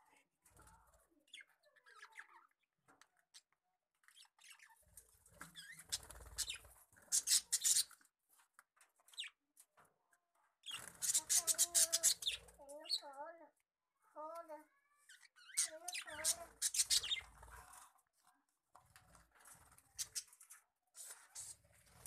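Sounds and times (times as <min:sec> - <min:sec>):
wings fluttering: 0:05.0 - 0:08.0, 0:10.7 - 0:12.6, 0:18.9 - 0:22.0
budgerigars chirping: 0:05.6 - 0:07.9, 0:15.4 - 0:17.3.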